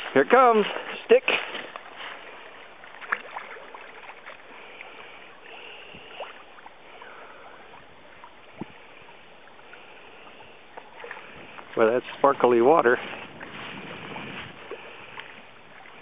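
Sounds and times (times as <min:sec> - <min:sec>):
water splashing and lapping: 0:00.0 - 0:16.0.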